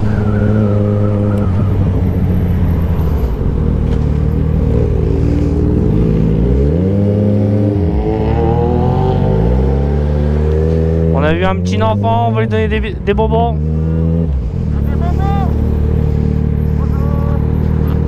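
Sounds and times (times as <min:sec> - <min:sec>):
motorcycle engine accelerating: 0:00.0 - 0:18.0.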